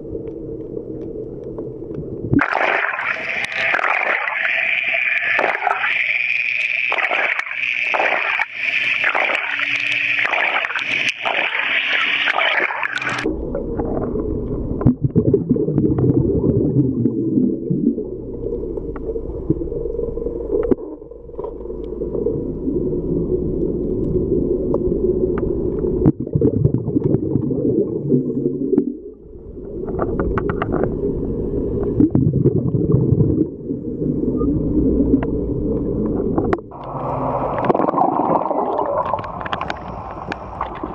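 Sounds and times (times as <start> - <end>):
dull low rumble: 0.0 - 2.5, 13.2 - 40.9
muffled underwater noise: 2.4 - 40.9.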